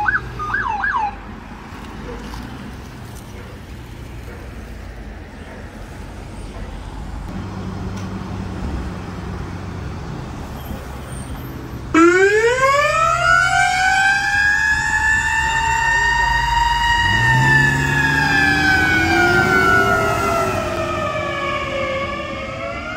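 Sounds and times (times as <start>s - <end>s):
ambulance siren wailing: 0.0s - 1.3s, 11.9s - 22.9s
low vehicle engine: 0.0s - 22.9s
traffic noise: 0.0s - 22.9s.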